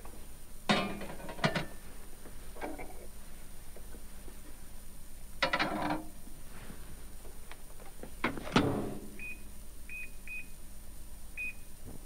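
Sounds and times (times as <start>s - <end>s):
dish clattering in microwave: 0.7s - 1.8s.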